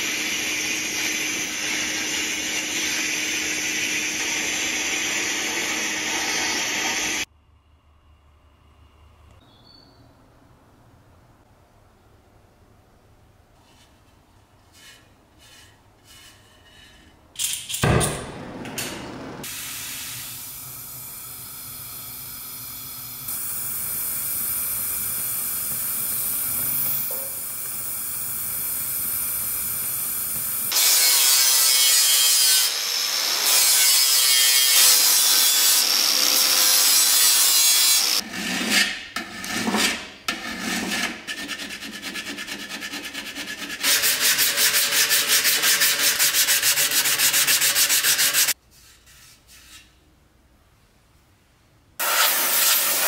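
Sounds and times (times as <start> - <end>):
angle grinder grinding metal: 0.0 - 7.3, 30.7 - 38.2
gas torch flame hissing: 18.4 - 30.7
sanding block rubbing metal: 39.6 - 49.8.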